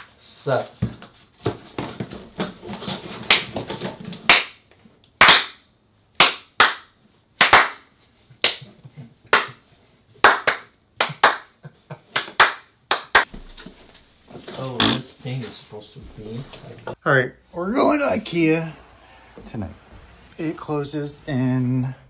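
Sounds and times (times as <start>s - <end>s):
hands clapping: 3.2s - 3.6s, 4.2s - 4.6s, 5.2s - 5.6s, 6.2s - 13.3s.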